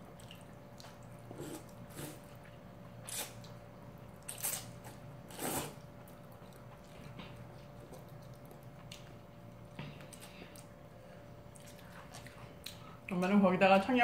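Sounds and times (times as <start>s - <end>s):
person slurping noodles: 1.3s - 2.3s, 5.3s - 5.8s.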